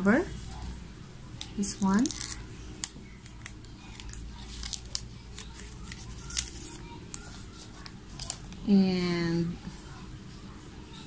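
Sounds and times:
cellophane crinkling: 1.4s - 8.7s.

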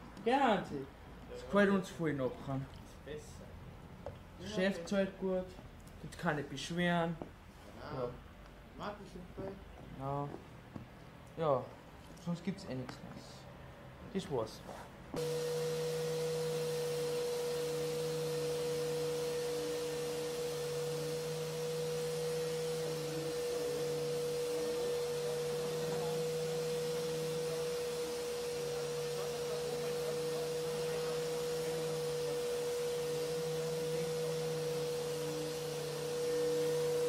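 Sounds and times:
orbital sander whining: 15.2s - 37.0s.

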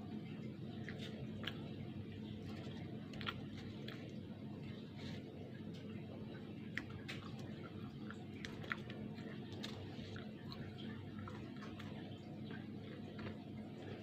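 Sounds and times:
steady low hum: 0.0s - 14.0s
person chewing food: 0.2s - 14.0s.

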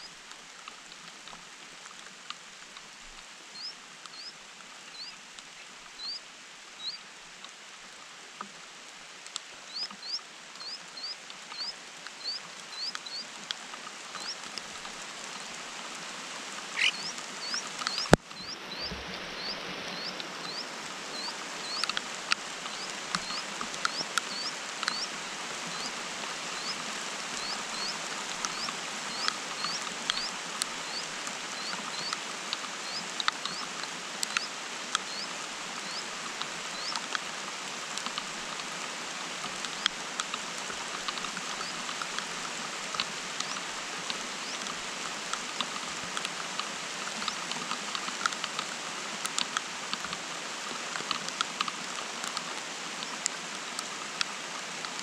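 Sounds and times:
rain pattering on leaves: 0.0s - 55.0s
nestlings peeping: 9.7s - 13.2s, 16.7s - 25.1s, 27.4s - 30.3s, 30.9s - 32.2s, 32.8s - 33.6s, 35.1s - 36.1s.

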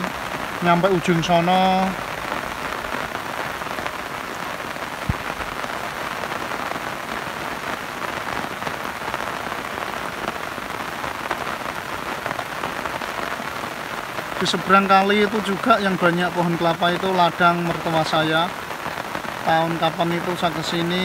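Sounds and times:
steady rain hiss: 0.0s - 21.0s
single raindrop taps: 5.0s - 5.3s.

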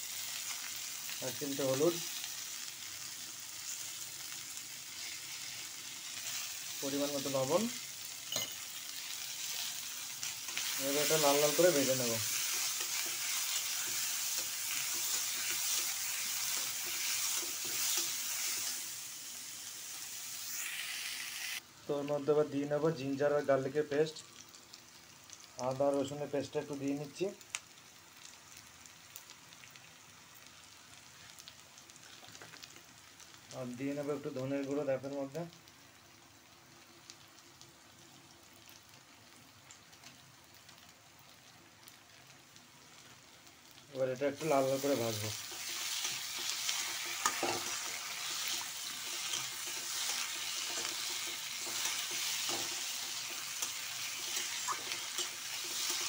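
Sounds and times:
potatoes and onions sizzling in oil: 0.0s - 56.0s
small crackles: 26.8s - 33.8s, 36.6s - 56.0s
metal spatula scraping a pan: 45.4s - 56.0s.

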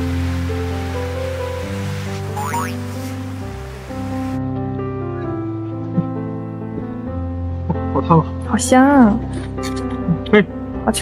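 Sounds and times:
sea waves: 0.0s - 4.4s
slow sustained chord music: 0.0s - 10.9s.

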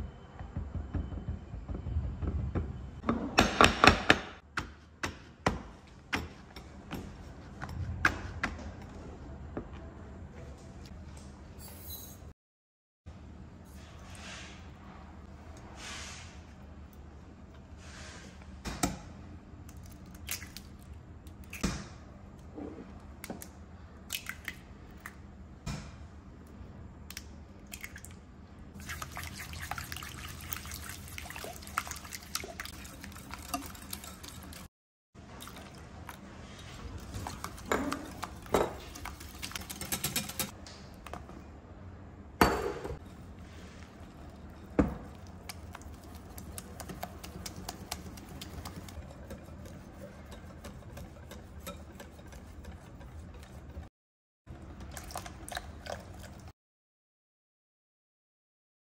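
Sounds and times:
whisk beating in glass bowl: 28.8s - 34.7s, 37.0s - 40.6s, 45.1s - 53.9s.

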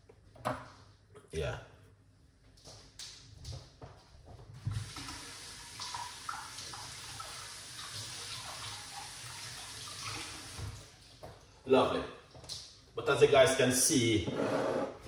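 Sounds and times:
tap water running into sink: 4.6s - 11.4s.

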